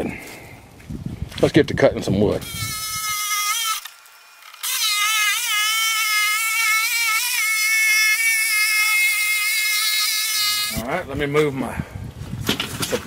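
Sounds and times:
electric jigsaw cutting wood: 0:02.4 - 0:10.8.

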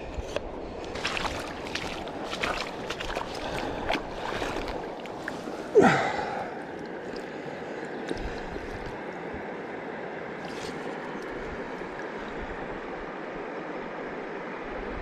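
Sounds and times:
water splashing around a net: 0:00.9 - 0:09.0, 0:10.4 - 0:12.2
person grunting: 0:05.7 - 0:06.6.

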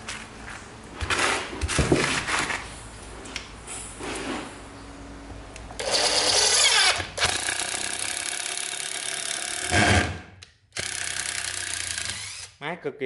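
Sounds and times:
impact driver driving screw: 0:05.8 - 0:12.5.

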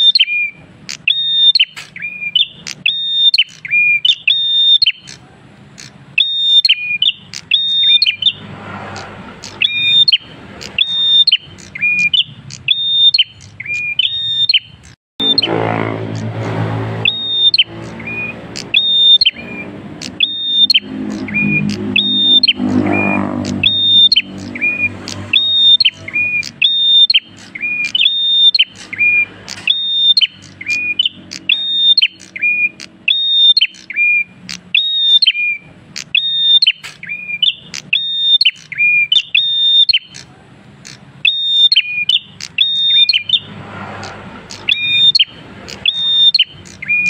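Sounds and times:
low drone: 0:15.2 - 0:26.4.

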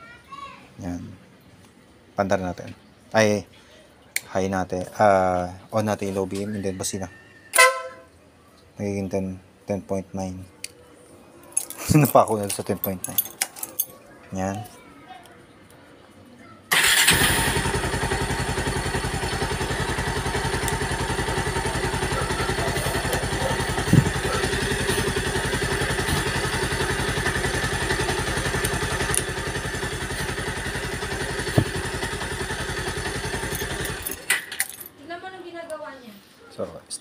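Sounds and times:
motorcycle engine idling: 0:16.7 - 0:34.2.

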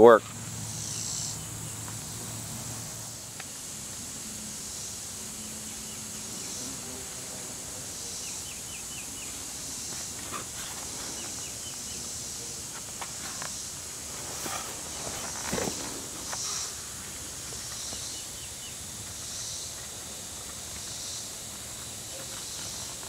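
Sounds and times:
insects droning: 0:00.0 - 0:23.0
bird chirps: 0:00.6 - 0:02.3, 0:07.9 - 0:10.0.

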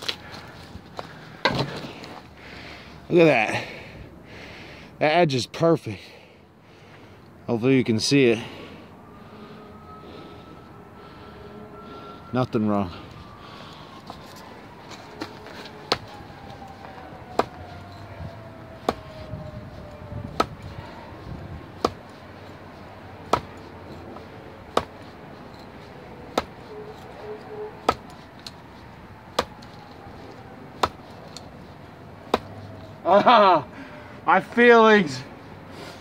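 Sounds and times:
knife stabbing into wood: 0:14.0 - 0:31.6, 0:32.2 - 0:32.7.

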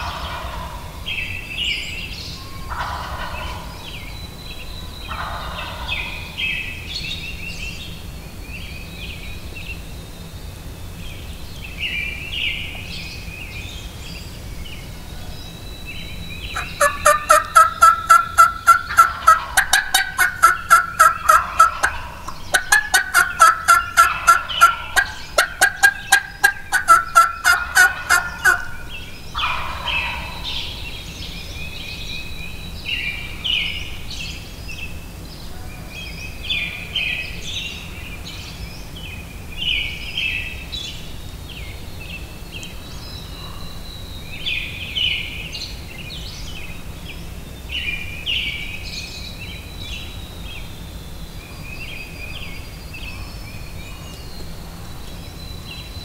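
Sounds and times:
rapid turkey yelps: 0:00.0 - 0:00.9, 0:02.7 - 0:03.8, 0:05.1 - 0:06.4, 0:16.5 - 0:30.8
songbird chirps: 0:00.0 - 0:56.0.

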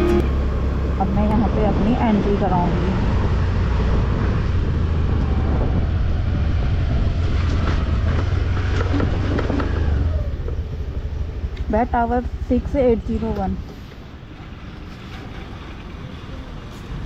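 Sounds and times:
scooter engine humming: 0:00.0 - 0:04.6, 0:08.0 - 0:14.7
road and wind noise: 0:00.0 - 0:17.0.

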